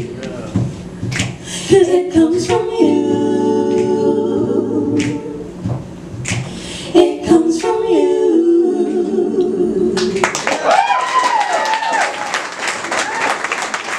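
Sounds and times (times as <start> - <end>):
women singing a cappella: 1.5 - 5.6, 6.5 - 10.3.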